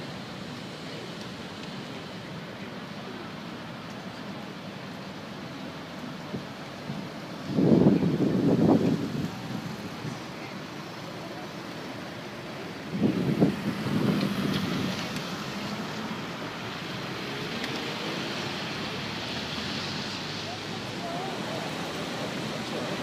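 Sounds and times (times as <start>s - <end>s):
storm surf roaring: 5.8s - 23.0s
wind gusting: 6.3s - 23.0s.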